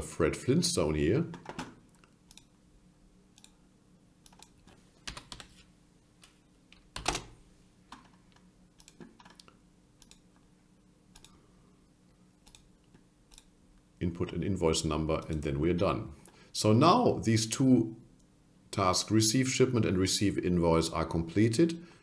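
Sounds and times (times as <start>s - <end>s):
keyboard keystrokes: 4.3s - 5.5s, 7.0s - 8.1s.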